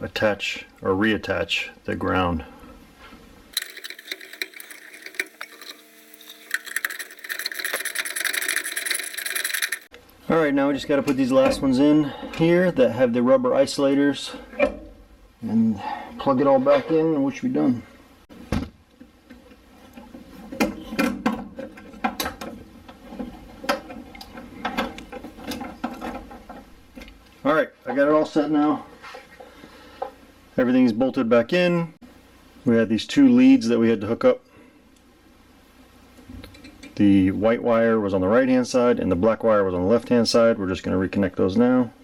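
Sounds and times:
metal clicks and scraping: 0:03.5 - 0:10.0.

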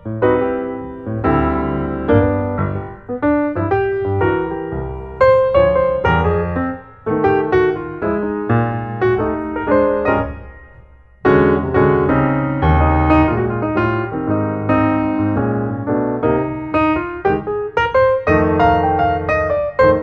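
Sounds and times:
piano music: 0:00.0 - 0:20.0.

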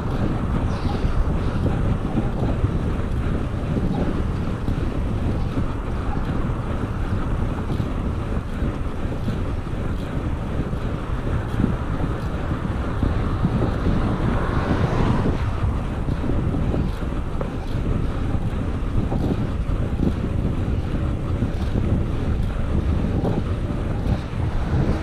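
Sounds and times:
wind buffeting microphone: 0:00.0 - 0:25.0.

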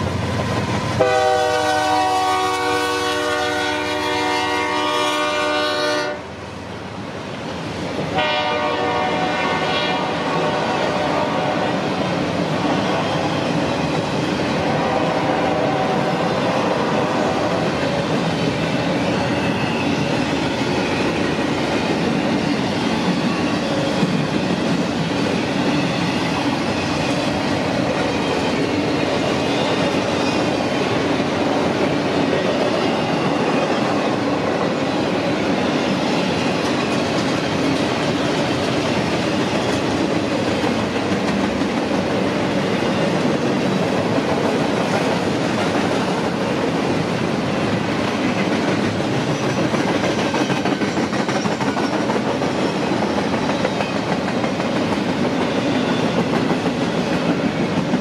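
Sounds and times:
train wheels rumbling on rail: 0:00.0 - 0:58.0
clickety-clack over rail joints: 0:17.6 - 0:58.0.

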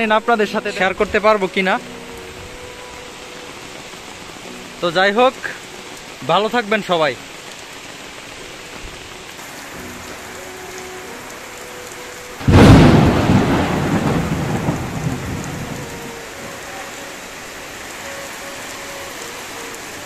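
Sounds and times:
heavy rain falling: 0:00.0 - 0:20.0
thunder clap and rumble: 0:12.4 - 0:16.0.

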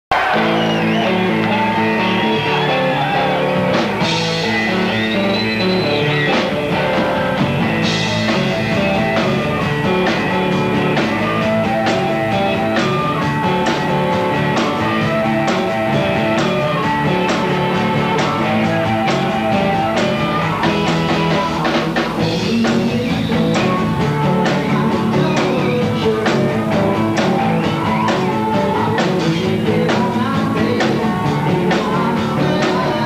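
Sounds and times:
drum kit beat: 0:00.1 - 0:33.0
electric guitars: 0:00.1 - 0:33.0.

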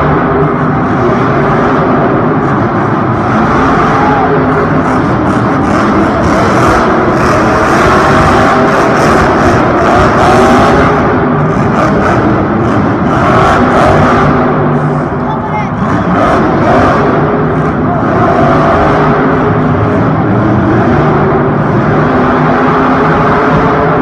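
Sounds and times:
crowd noise: 0:00.0 - 0:24.0
monster truck engine revving: 0:00.0 - 0:24.0.

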